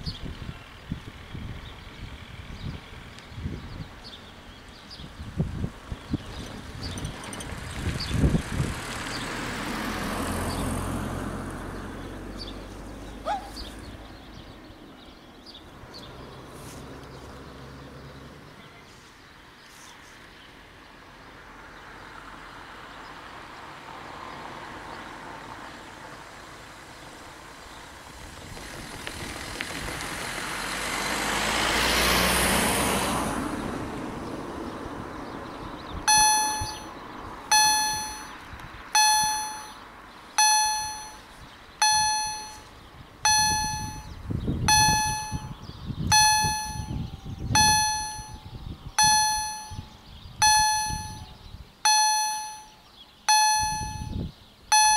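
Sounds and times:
passing vehicle: 5.8s - 13.2s, 28.1s - 35.8s
level crossing warning bell: 36.1s - 39.8s, 40.4s - 41.2s, 41.8s - 54.9s.

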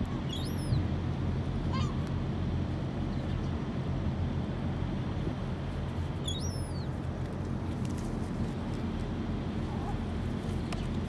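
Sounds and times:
steady low rumble: 0.0s - 11.0s
gulls calling: 0.1s - 0.9s.

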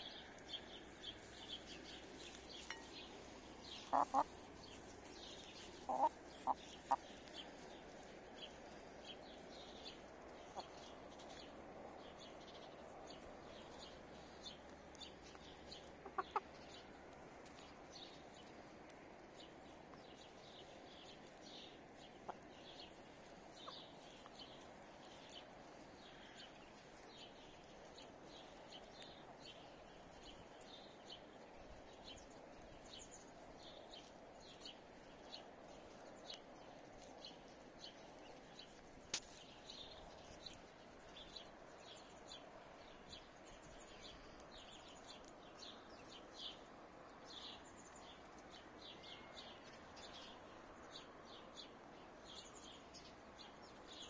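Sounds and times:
hens clucking softly: 0.2s - 8.6s, 9.9s - 11.6s, 13.6s - 17.7s, 21.7s - 27.0s.

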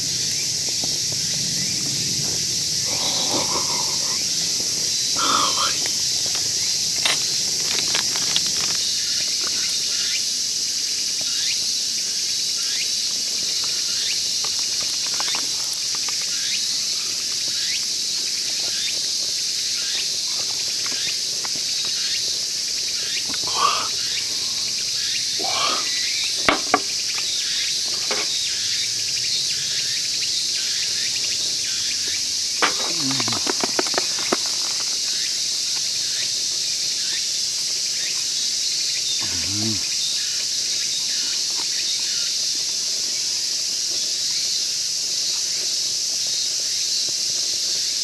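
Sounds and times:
sausages crackling on grill: 0.0s - 10.8s, 13.0s - 36.8s
forest insects chorus: 0.0s - 48.0s.

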